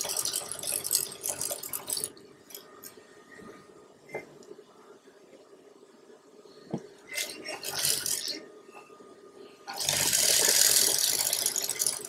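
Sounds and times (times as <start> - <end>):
sewing machine stitching: 9.7 - 12.0.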